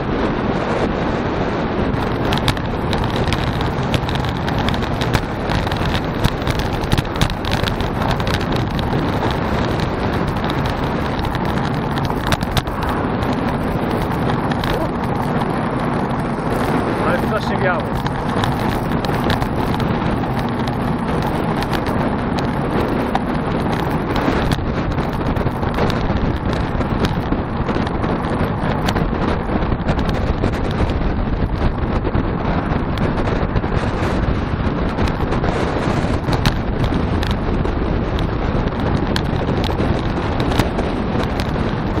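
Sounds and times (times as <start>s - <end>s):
tyre and road noise: 0.0s - 42.0s
wind rush over microphone: 0.0s - 42.0s
small clicks: 2.0s - 15.5s.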